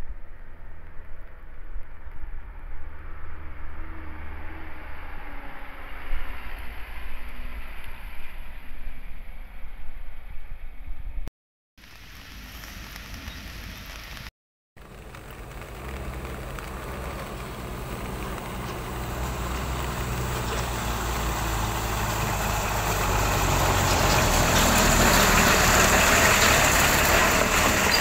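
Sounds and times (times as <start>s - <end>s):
steady hiss: 11.8s - 14.3s
truck engines running: 14.8s - 28.0s.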